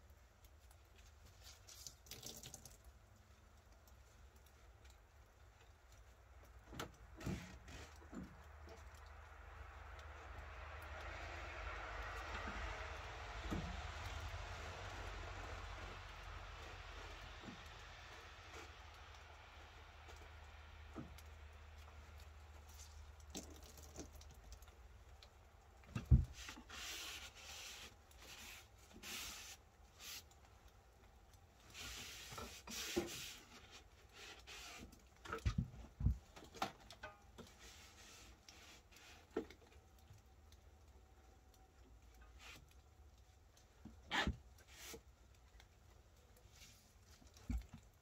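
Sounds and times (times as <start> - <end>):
rustling: 11.1 - 40.0.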